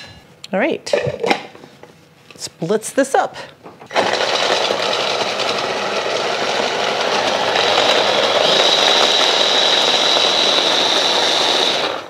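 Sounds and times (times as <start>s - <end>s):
electric chopper mincing garlic: 3.9s - 12.0s.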